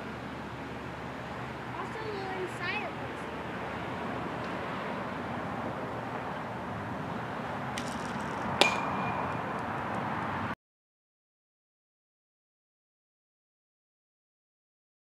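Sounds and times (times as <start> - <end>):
outdoor background noise: 0.0 - 10.6
sharp metallic ping: 8.6 - 9.6.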